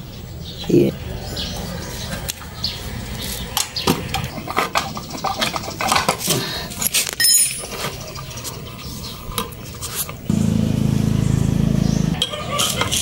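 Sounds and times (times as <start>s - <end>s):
metal tools clicking and knocking: 3.6s - 6.3s.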